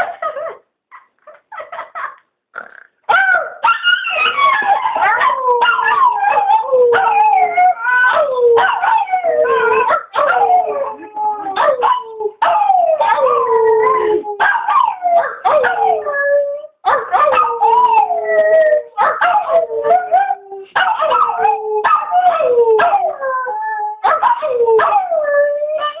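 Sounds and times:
dog howling: 3.2s - 26.0s
dog whimpering and yipping: 3.6s - 14.9s.

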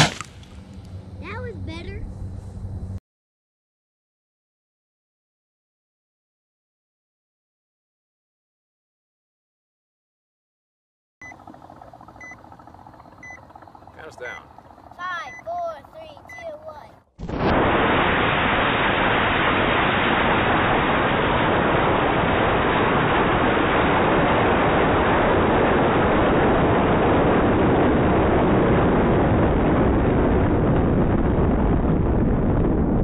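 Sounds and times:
wind rushing over microphone: 17.3s - 33.0s.

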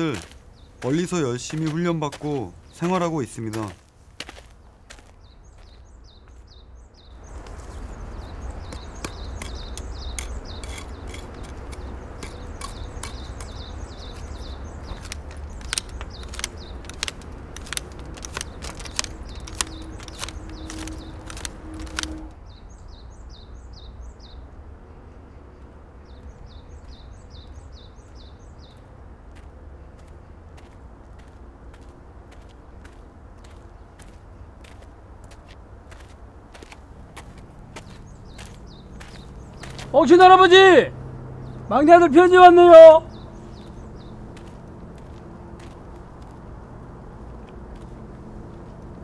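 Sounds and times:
outdoor background: 0.0s - 49.0s
small bird chirping: 4.9s - 24.4s, 43.1s - 45.2s
hedge shears snipping: 8.8s - 22.2s.

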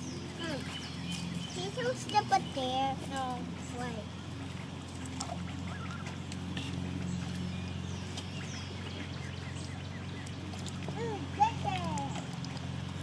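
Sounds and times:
ducks dabbling in water: 0.0s - 13.0s
steady low hum: 0.0s - 13.0s
small clicks and splashes: 4.5s - 9.1s, 10.0s - 13.0s.

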